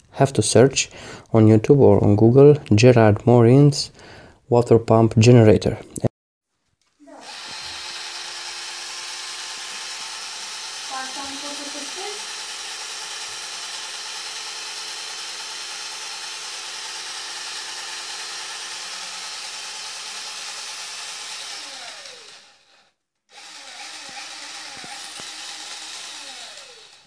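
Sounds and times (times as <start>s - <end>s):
drill motor whine: 7.2s - 27.0s.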